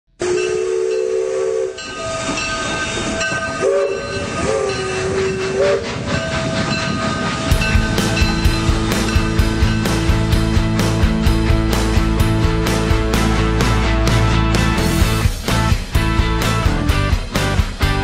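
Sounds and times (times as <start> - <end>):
train horn blasts: 0.1 - 5.9
rock music with steady beat: 7.5 - 18.0.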